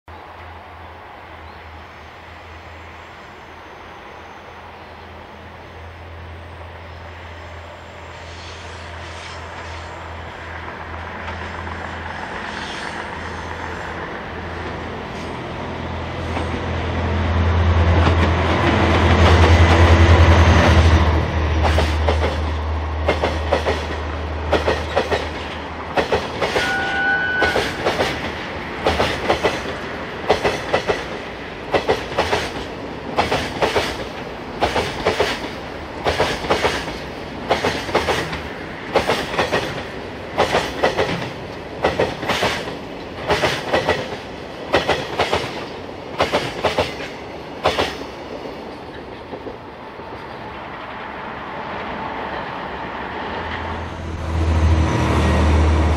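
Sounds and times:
locomotive engine drone: 0.1 - 26.0, 49.6 - 55.9
train wheels clickety-clack: 17.9 - 50.5
short high squeal: 26.6 - 27.8.

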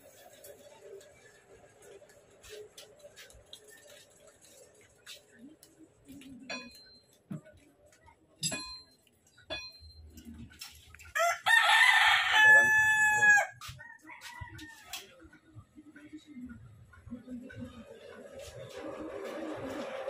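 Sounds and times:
rooster crowing: 11.2 - 14.9.

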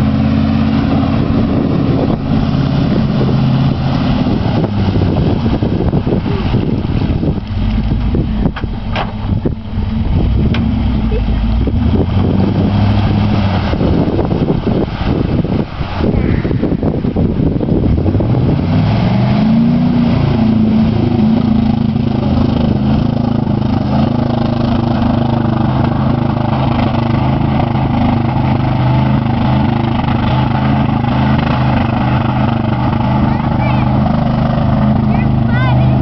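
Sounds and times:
truck engine pulling hard: 0.0 - 36.0
water sloshing: 0.0 - 36.0.

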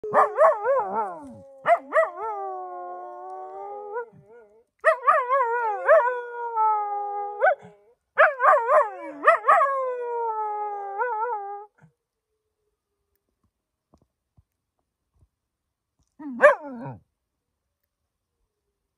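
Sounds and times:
dog howling: 0.0 - 11.7.

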